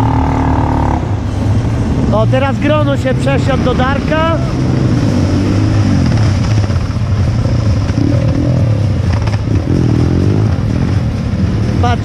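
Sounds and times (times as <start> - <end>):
go-kart engine revving up: 0.0 - 1.3
go-kart engines running hard: 0.0 - 12.0.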